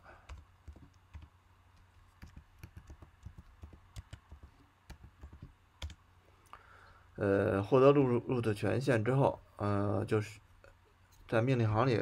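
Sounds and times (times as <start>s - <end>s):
computer keyboard keystrokes: 0.3s - 6.0s.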